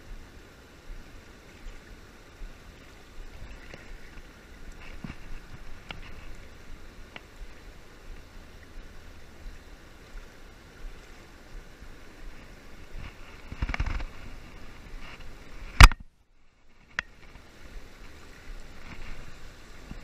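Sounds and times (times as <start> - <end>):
river water rushing over dam: 0.0 - 16.0
sharp loud click: 15.8 - 16.0.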